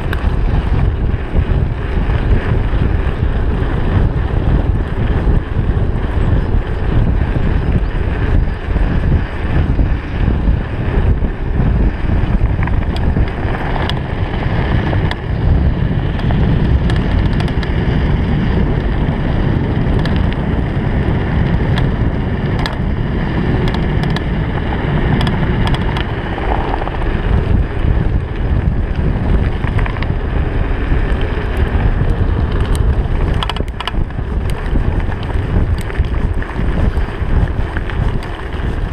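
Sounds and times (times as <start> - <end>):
bike clicking and rattling: 0.0 - 38.9
wind rushing over microphone: 0.0 - 38.9
tyres on gravel: 21.4 - 38.9.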